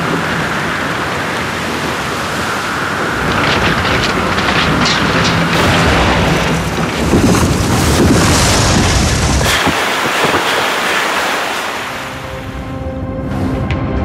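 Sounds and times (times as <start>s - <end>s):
rushing water: 0.0s - 12.9s
wind: 0.0s - 14.0s
deep rumbling booms: 3.1s - 10.8s.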